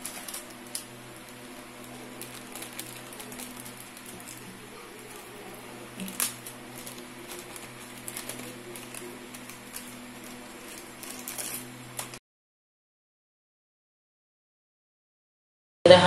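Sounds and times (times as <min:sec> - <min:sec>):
plastic bag crinkling: 0:00.0 - 0:12.2.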